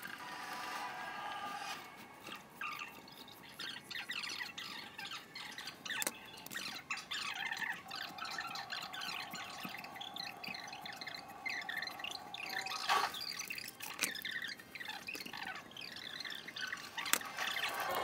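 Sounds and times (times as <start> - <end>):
foam squeaking under knife: 12.4 - 18.0.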